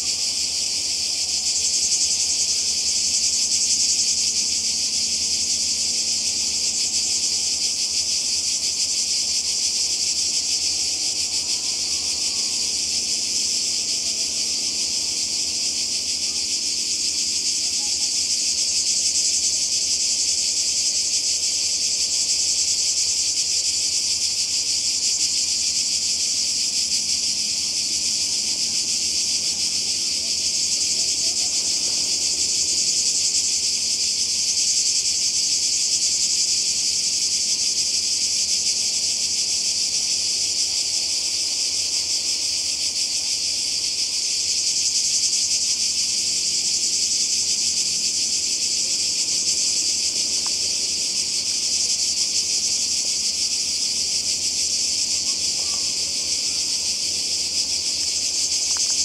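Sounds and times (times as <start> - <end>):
cicadas buzzing: 0.0 - 59.0.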